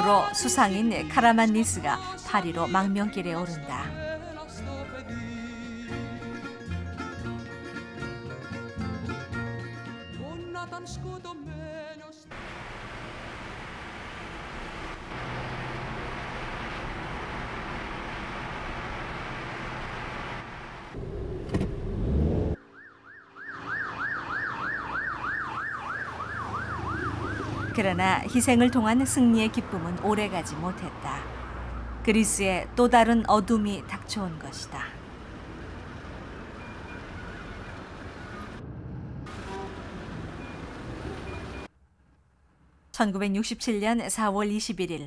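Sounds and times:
road traffic rumble: 12.3 - 22.6, 23.6 - 41.7
emergency siren yelping: 22.6 - 32.1, 34.8 - 38.7.

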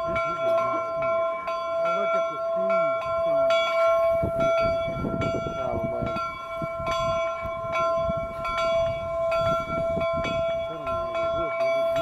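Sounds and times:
crowd murmuring: 0.0 - 12.0
locomotive bell ringing: 0.0 - 12.0.

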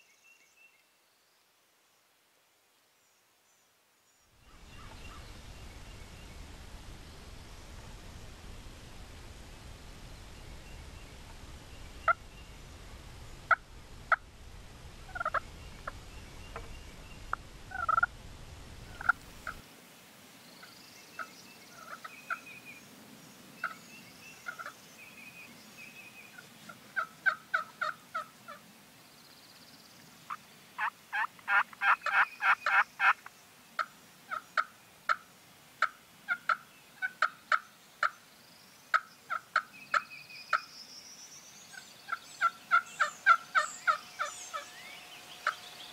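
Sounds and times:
turkey clucks and yelps: 15.1 - 16.7, 17.7 - 18.1, 18.9 - 19.6, 21.2 - 22.4, 24.4 - 24.7, 26.4 - 28.6, 30.3 - 33.2, 35.8 - 38.1, 42.1 - 44.7.

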